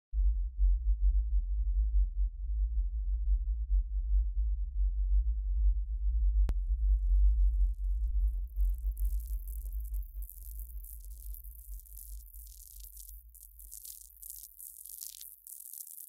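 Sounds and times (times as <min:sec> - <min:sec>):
deep bass drone: 0:00.2 - 0:14.3
faint high crackling noise: 0:07.0 - 0:16.0.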